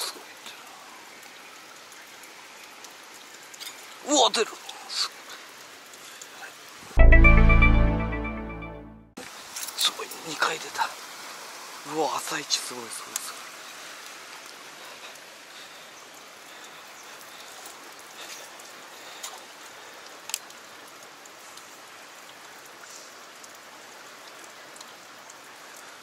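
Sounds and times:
stream water rushing over rocks: 0:09.2 - 0:26.0.

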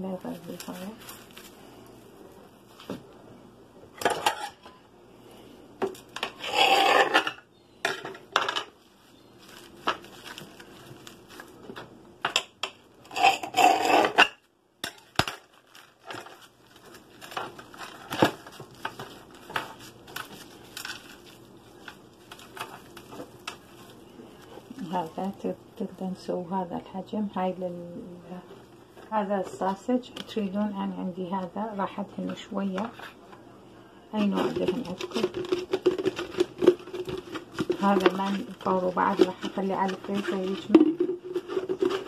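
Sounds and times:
cling film crinkling: 0:00.1 - 0:02.9, 0:08.8 - 0:11.9, 0:15.0 - 0:25.9, 0:34.5 - 0:42.0.

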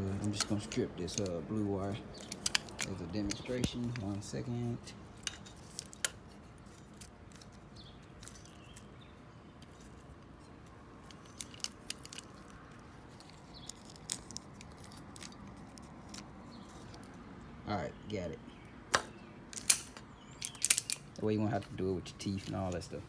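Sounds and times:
wire stripper clicks and snaps: 0:18.9 - 0:21.2.

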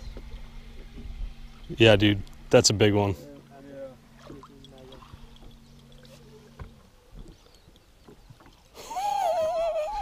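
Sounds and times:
steady low hum: 0:00.0 - 0:10.0
loud wavering cry: 0:08.8 - 0:10.0.

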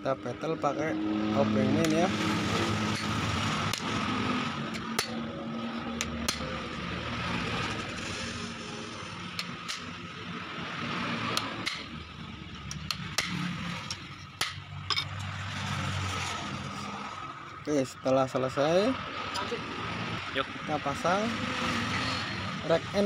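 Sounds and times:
sharp metal taps: 0:12.6 - 0:15.3.

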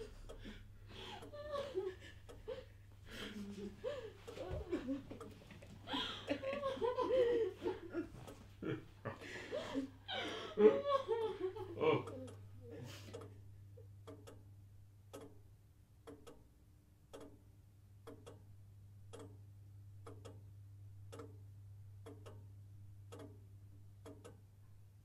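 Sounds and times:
faint clock ticking: 0:00.0 - 0:24.8
low steady hum: 0:00.0 - 0:25.0.

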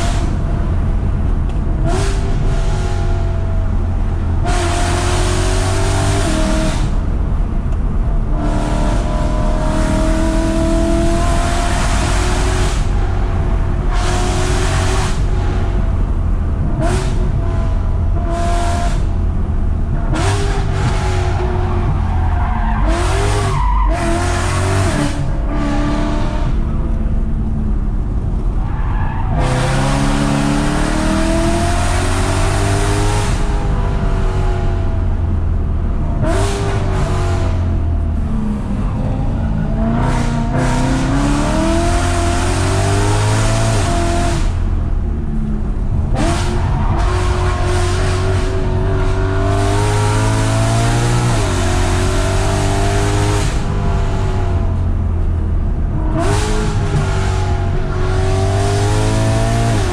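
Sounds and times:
car engine revving from inside: 0:29.4 - 0:35.0, 0:46.0 - 0:54.8, 0:55.9 - 0:59.9.

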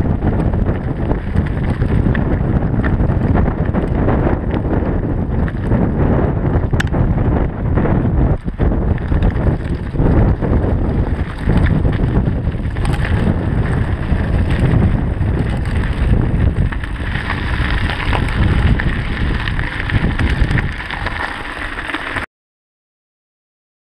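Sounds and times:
bike rattling: 0:00.0 - 0:22.3
wind rumble on microphone: 0:00.0 - 0:22.3
tyres crunching on gravel: 0:09.0 - 0:22.2.

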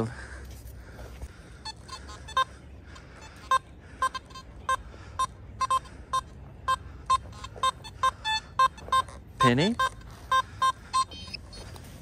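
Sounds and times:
metal detector beeps: 0:01.6 - 0:02.5, 0:03.2 - 0:11.8.

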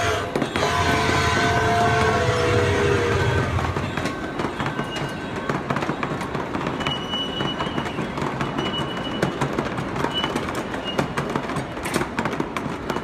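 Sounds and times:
multi-note train whistle: 0:00.0 - 0:03.9
miniature train rumbling: 0:00.0 - 0:13.0
wheels clicking over rail joints: 0:03.2 - 0:13.0.

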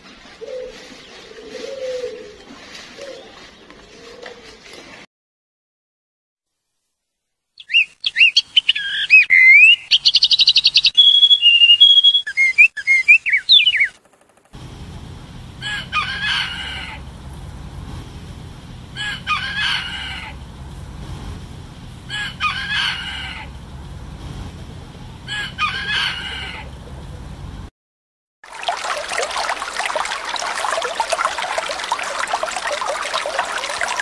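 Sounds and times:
songbird chirping and trilling: 0:07.6 - 0:14.0
rooster crowing: 0:15.0 - 0:27.2.

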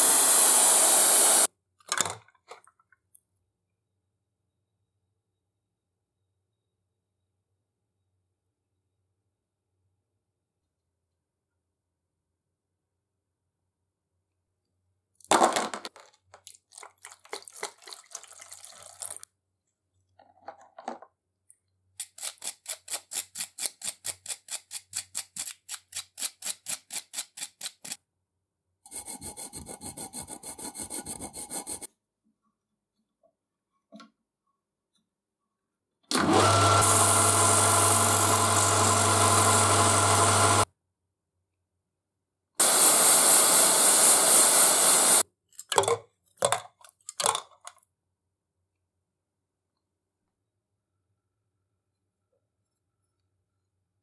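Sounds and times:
hand file rasping on steel: 0:28.9 - 0:31.9
gas torch roaring: 0:42.6 - 0:45.2.

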